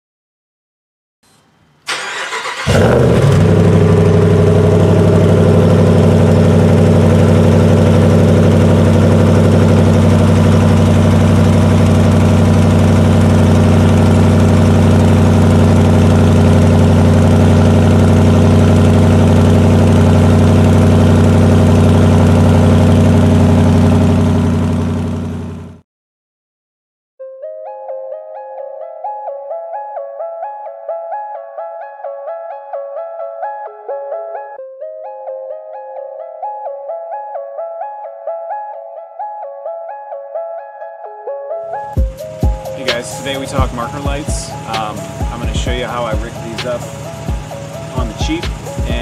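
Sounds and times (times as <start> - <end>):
engine starter cranking: 1.9 - 3.6
engine idling loudly: 2.6 - 25.8, 42.1 - 49.0.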